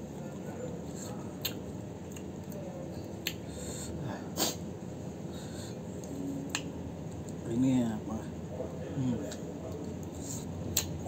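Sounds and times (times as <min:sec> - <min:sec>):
chewing crisp fruit: 0:00.7 - 0:03.5, 0:09.2 - 0:11.0.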